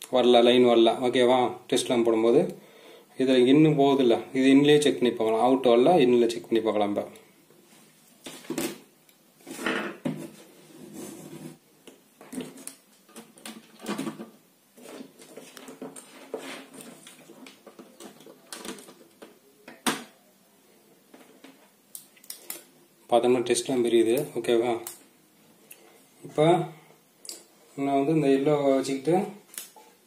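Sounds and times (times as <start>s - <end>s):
rustling of wires: 7.6s - 19.9s.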